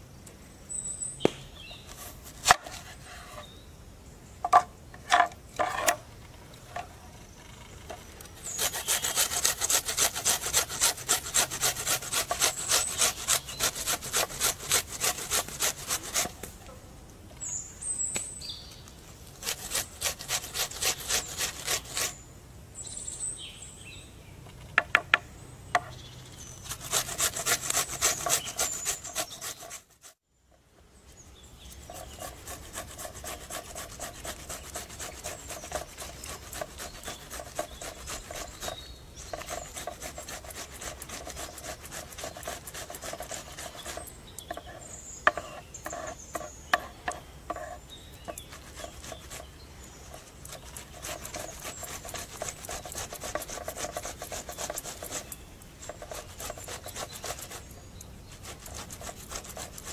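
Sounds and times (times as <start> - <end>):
vegetables rasping on metal grater: 8.4 - 16.3, 19.4 - 22.2, 26.6 - 30.2, 31.9 - 46.9, 47.5 - 49.5, 50.1 - 57.7, 58.4 - 59.9.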